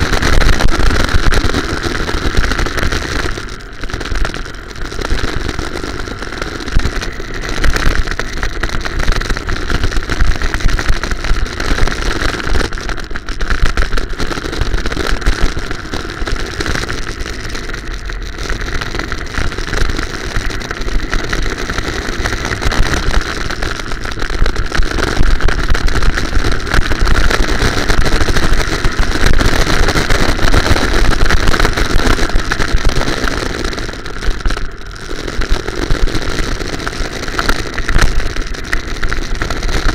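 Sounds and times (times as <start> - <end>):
go-kart motor running: 0.0 - 39.9
heavy rumble: 0.0 - 39.9.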